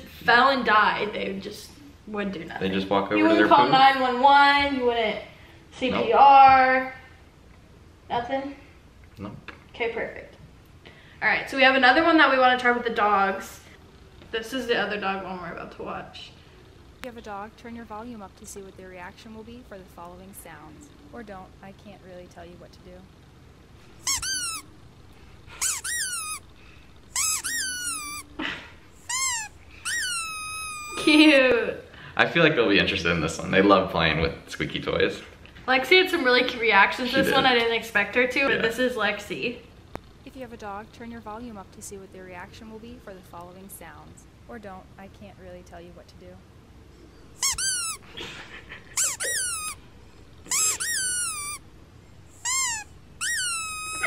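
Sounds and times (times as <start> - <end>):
rubber squeaky dog toy: 24.0 - 24.8, 25.5 - 26.5, 27.1 - 28.4, 29.0 - 31.1, 47.4 - 48.2, 48.9 - 51.7, 52.3 - 54.0
cat meowing: 49.0 - 49.8, 52.4 - 54.0.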